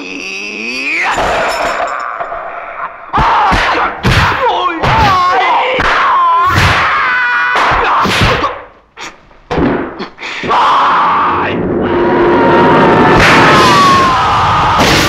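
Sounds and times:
high-pitched fighting yells: 0:00.6 - 0:08.7, 0:10.5 - 0:11.6, 0:13.1 - 0:15.0
punch and slap impacts: 0:03.2 - 0:05.2, 0:05.8 - 0:07.0, 0:07.6 - 0:08.6.

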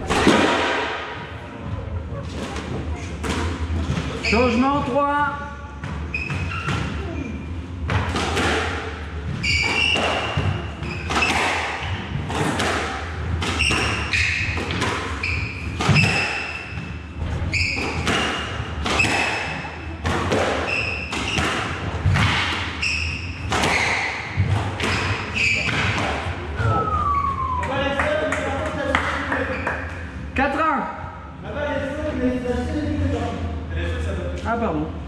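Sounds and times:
squash ball hits echoing: 0:00.0 - 0:01.4, 0:07.8 - 0:26.9
shoes squeaking on wooden floor: 0:04.0 - 0:04.8, 0:06.0 - 0:06.8, 0:09.4 - 0:11.4, 0:22.8 - 0:25.9.

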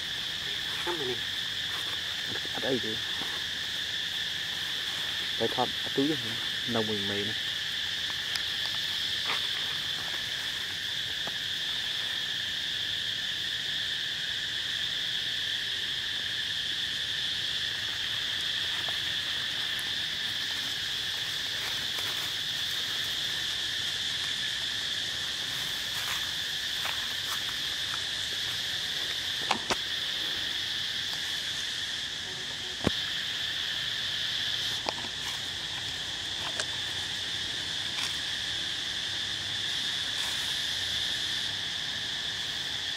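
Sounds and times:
insect chorus drone: 0:00.0 - 0:42.9.

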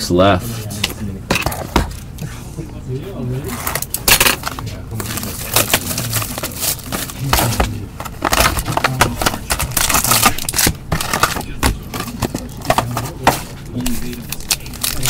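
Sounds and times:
cards rustling and clicking: 0:03.4 - 0:15.0
plastic wrapper crinkling: 0:03.7 - 0:15.0.

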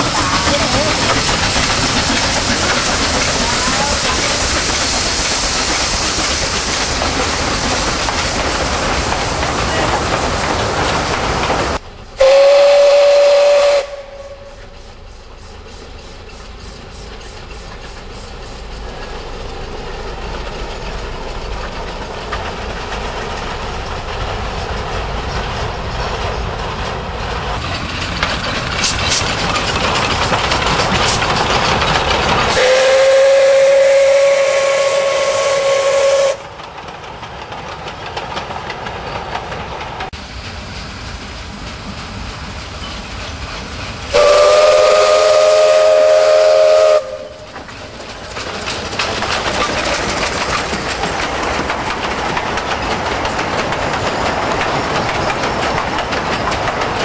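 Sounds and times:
steam locomotive running on rails: 0:00.0 - 0:57.0
steam whistle: 0:12.2 - 0:14.8, 0:32.5 - 0:36.4, 0:44.1 - 0:47.5.

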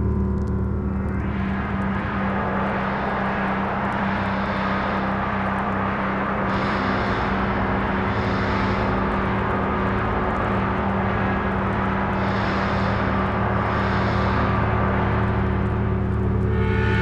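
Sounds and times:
low hum: 0:00.0 - 0:17.0
rumbling engine-like drone: 0:00.0 - 0:17.0
high hiss: 0:12.2 - 0:15.6.

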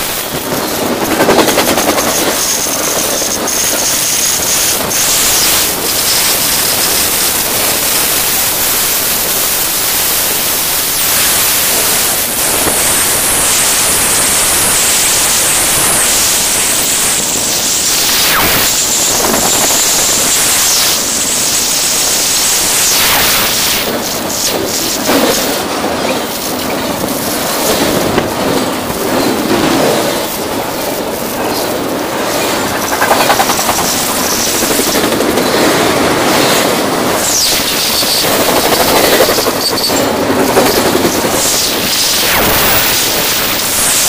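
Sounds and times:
dense rattle on gravel road: 0:00.0 - 0:17.8, 0:23.9 - 0:44.0
freight train rumbling past: 0:00.0 - 0:44.0
high wheel squeals: 0:37.2 - 0:42.2.

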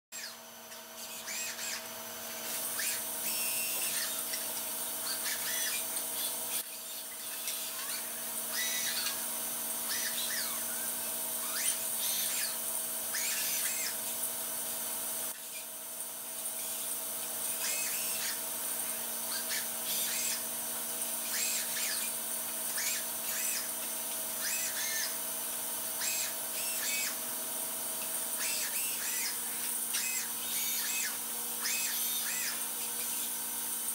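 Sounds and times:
short high-pitched whines: 0:01.0 - 0:14.0.

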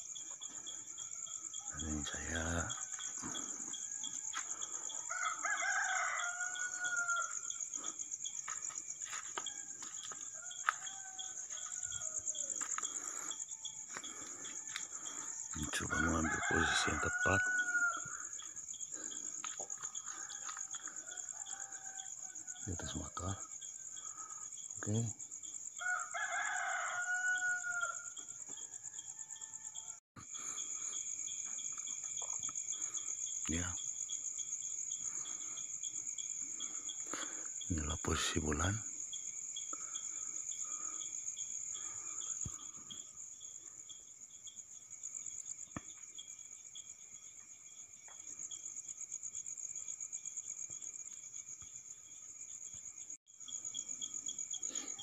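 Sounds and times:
crickets trilling: 0:00.0 - 0:55.0
rooster crowing: 0:00.8 - 0:25.0, 0:25.7 - 0:30.7.

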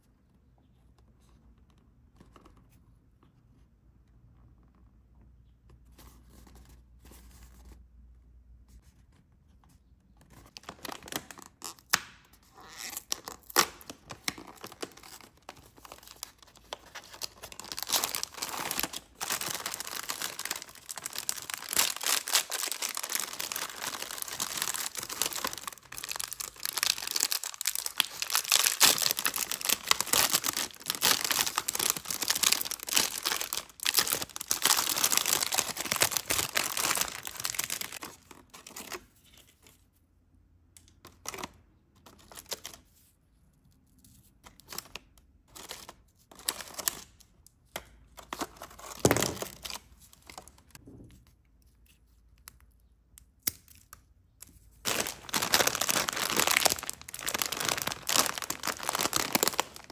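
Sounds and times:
foil crinkling and tearing: 0:12.8 - 0:38.2, 0:54.8 - 0:59.9
plastic tray crackling: 0:13.1 - 0:38.2, 0:54.8 - 0:59.9.

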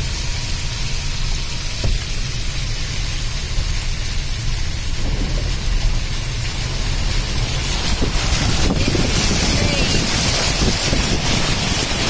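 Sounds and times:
low car rumble: 0:00.0 - 0:12.0
water spraying under car: 0:00.0 - 0:12.0.

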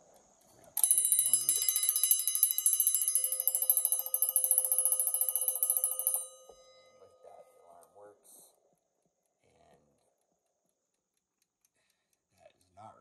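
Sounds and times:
alarm clock bell ringing: 0:00.8 - 0:07.8.

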